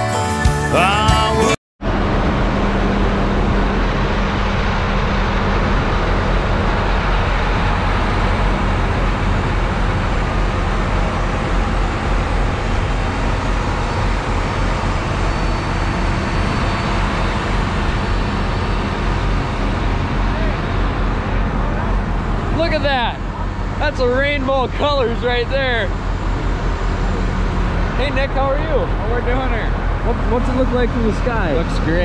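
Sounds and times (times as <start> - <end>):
tractor diesel engines idling: 3.0 - 32.0.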